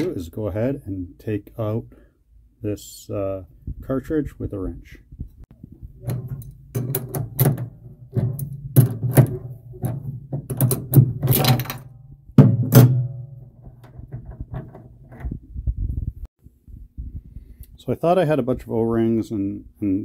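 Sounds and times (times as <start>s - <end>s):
sharp metallic clicks and knocks: 5.5s - 15.5s
wrench clanking and scraping on metal: 6.0s - 12.0s.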